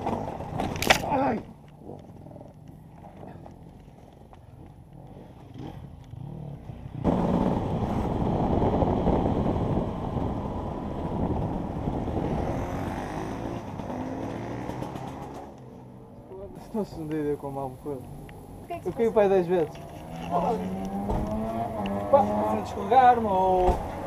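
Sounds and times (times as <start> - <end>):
motorbike engine running hard: 3.2 - 15.6.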